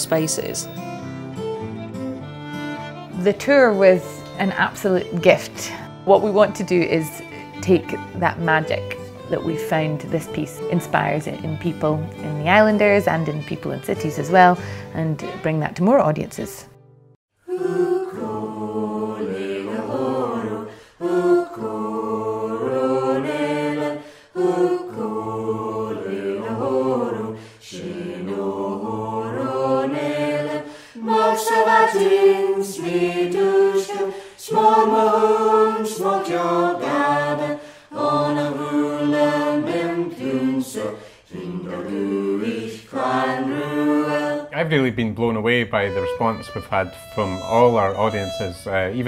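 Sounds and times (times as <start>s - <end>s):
voices singing unaccompanied: 0.0s - 0.8s, 17.4s - 45.0s, 45.7s - 49.0s
singers breathing: 14.6s - 15.0s, 20.7s - 21.0s, 24.0s - 24.4s, 27.3s - 27.6s, 30.6s - 31.0s, 34.0s - 34.4s, 37.6s - 38.0s, 40.9s - 41.3s.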